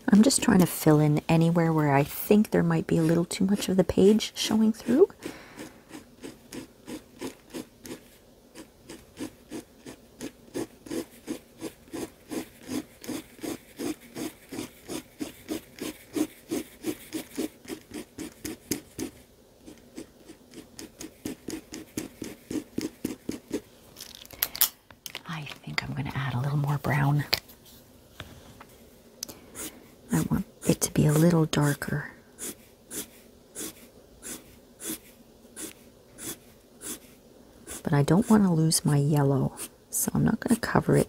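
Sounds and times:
marker scratching on paper: 5.6 - 23.7, 29.6 - 31.8, 32.4 - 38.5.

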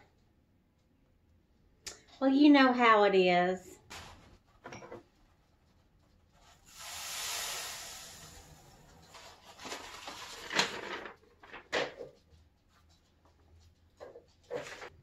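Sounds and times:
sugar pouring through paper funnel: 6.4 - 11.1
paper crinkling: 9.0 - 12.1.

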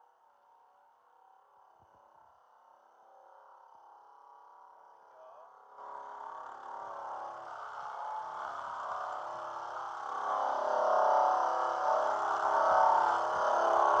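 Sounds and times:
sander running against car body: 5.8 - 14.0.

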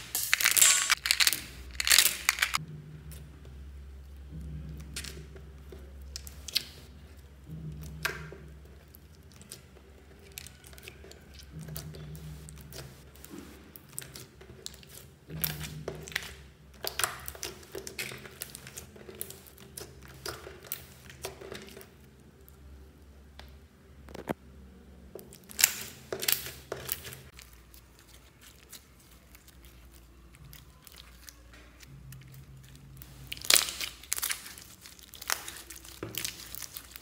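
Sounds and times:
slime with beads squeezed by hand: 0.0 - 2.6, 25.4 - 37.0.

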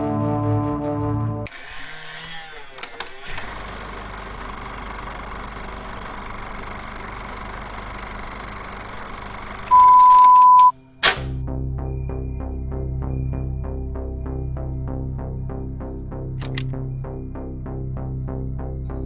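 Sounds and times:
film projector whirring: 1.5 - 9.8
steady high beep: 9.7 - 10.8
projector clicks: 16.4 - 16.7.

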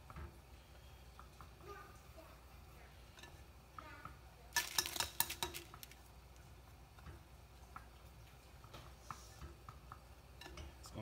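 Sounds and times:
chopsticks clacking against pot: 4.6 - 6.0.

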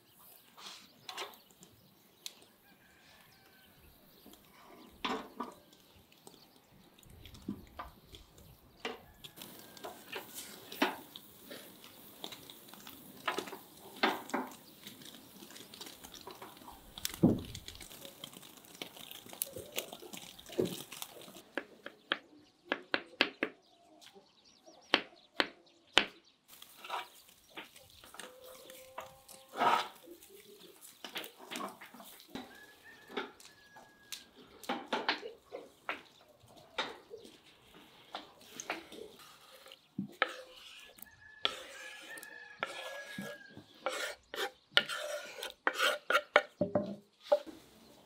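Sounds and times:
charcoal embers crackling: 0.0 - 22.2, 26.4 - 46.6
meat sizzling: 8.0 - 21.4, 26.5 - 33.5.

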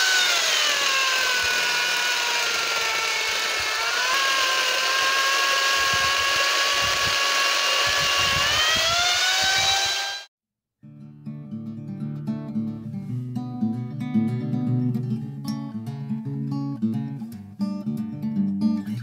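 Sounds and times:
electric chainsaw cutting branches: 0.0 - 10.3.

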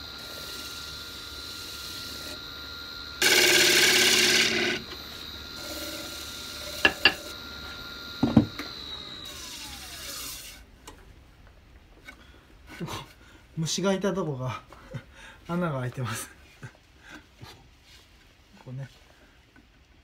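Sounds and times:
wood lathe motor whine: 0.0 - 10.7
gouge cutting wood: 3.2 - 7.3, 8.2 - 10.6.

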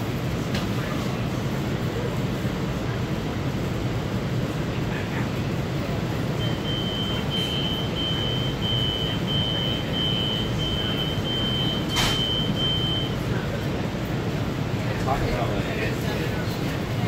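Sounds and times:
train low rumble: 0.0 - 17.0
high-pitched electronic beep: 6.4 - 13.2.

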